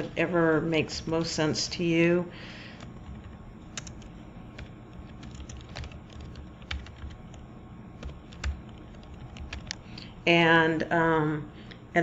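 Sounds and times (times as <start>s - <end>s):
typing on a computer keyboard: 2.8s - 7.4s, 8.0s - 9.8s.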